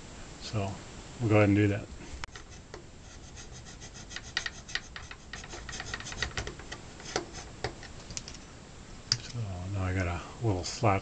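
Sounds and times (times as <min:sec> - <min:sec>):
metal tool scraping plastic: 0:02.3 - 0:08.4.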